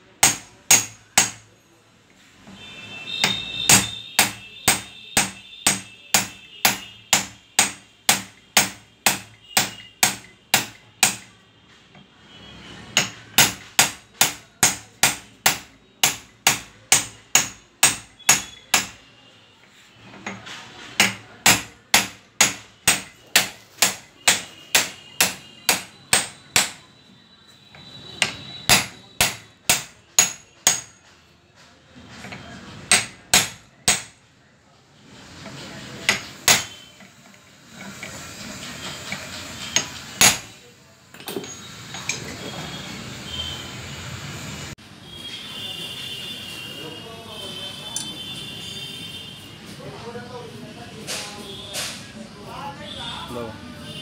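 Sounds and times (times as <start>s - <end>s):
hammer striking metal: 0.1s - 1.6s, 3.1s - 11.4s, 12.9s - 19.1s, 21.0s - 26.9s, 27.7s - 31.2s, 32.8s - 34.3s, 36.0s - 37.1s, 39.0s - 40.6s.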